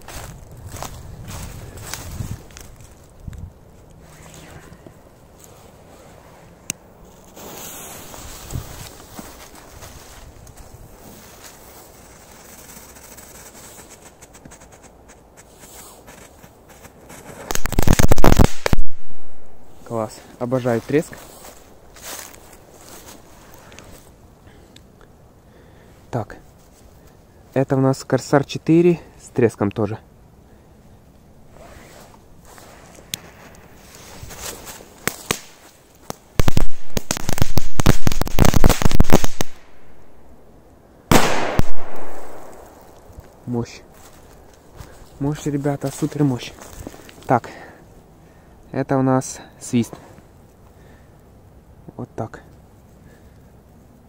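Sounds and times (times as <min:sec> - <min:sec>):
firecracker crackling pops: 0:17.1 - 0:19.6, 0:35.0 - 0:40.0, 0:41.1 - 0:43.4
loud firecracker bang: 0:41.1 - 0:42.8.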